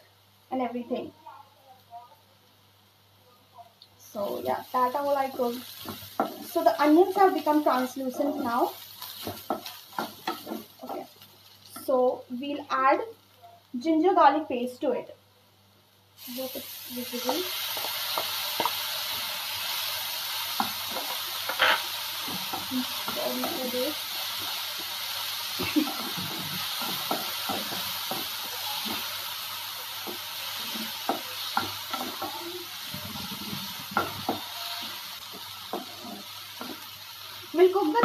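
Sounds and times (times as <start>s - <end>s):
onions sizzling in hot oil: 0.0s - 1.1s, 2.4s - 15.1s, 15.8s - 38.0s
wooden spatula scraping pan: 8.1s - 11.1s, 31.6s - 36.9s.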